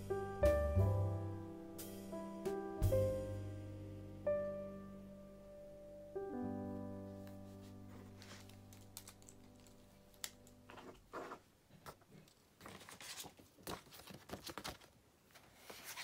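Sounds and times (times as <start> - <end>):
soft piano music: 0.0 - 10.7
paper rustling: 7.2 - 16.0.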